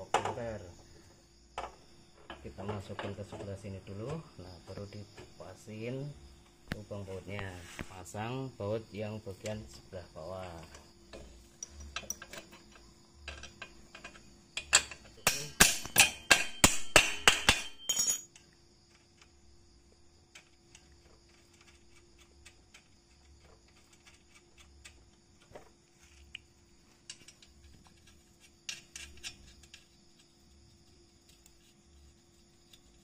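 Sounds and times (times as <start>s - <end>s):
metal tools clinking: 11.6s - 18.4s.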